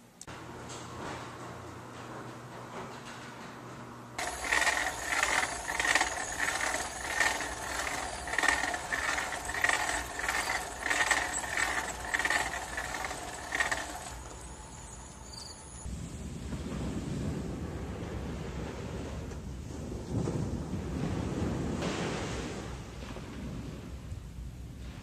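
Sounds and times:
bicycle squeaking: 4.2 - 15.9.

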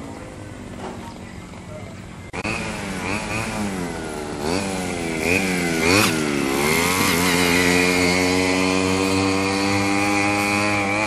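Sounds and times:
small motorbike engine revving: 2.3 - 11.0.

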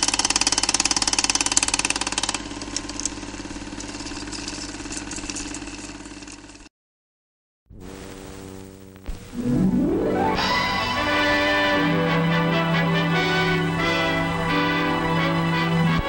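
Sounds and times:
film projector clattering: 0.0 - 6.7
projector motor hum: 11.0 - 16.0.

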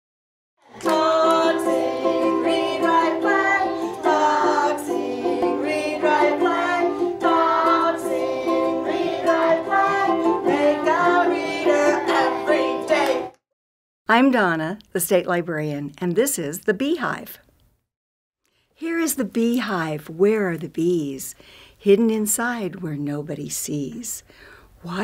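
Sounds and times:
intro music with plucked strings: 0.8 - 13.3.

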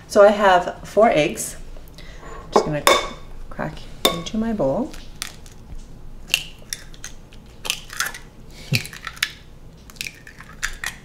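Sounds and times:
eggs cracking on a ceramic bowl: 4.0 - 11.0
eggshells crunching: 4.9 - 11.0.

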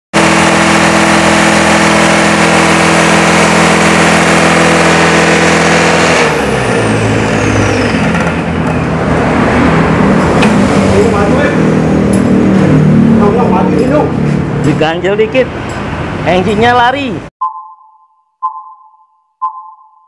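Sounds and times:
high pump whine: 0.2 - 13.5
diesel engine running: 0.2 - 16.5.

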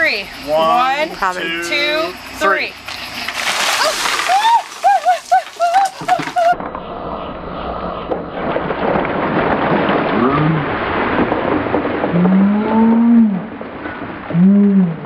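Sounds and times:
water pouring and splashing: 2.9 - 6.6, 8.4 - 14.3.

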